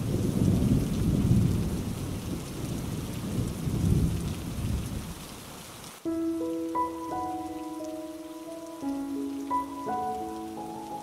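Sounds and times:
rolling thunder: 0.0s - 5.2s
steady rain: 0.0s - 11.0s.

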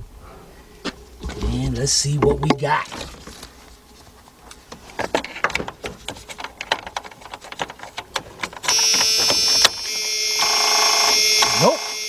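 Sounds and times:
loud electrical buzz: 8.7s - 12.0s.

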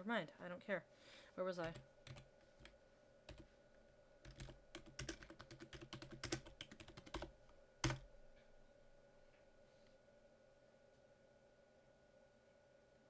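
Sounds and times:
typing on computer keyboard: 1.6s - 3.5s, 4.2s - 8.1s.

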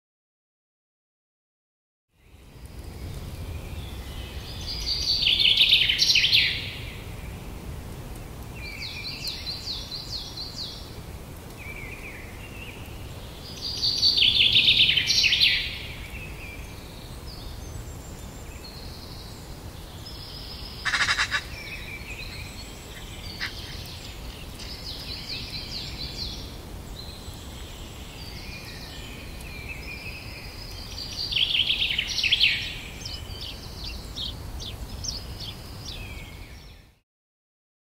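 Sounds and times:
songbirds singing: 2.1s - 37.0s
sharp bird call: 20.8s - 21.6s
loud bird trill: 20.8s - 23.9s.

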